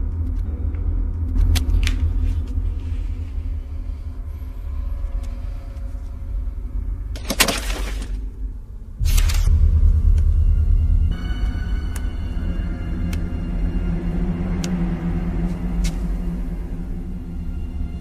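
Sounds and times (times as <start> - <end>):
low rumbling drone: 0.0 - 18.0.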